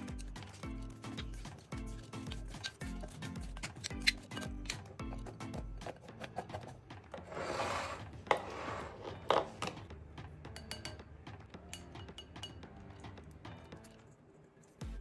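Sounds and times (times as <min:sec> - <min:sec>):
spoon clinking: 0:10.5 - 0:13.0.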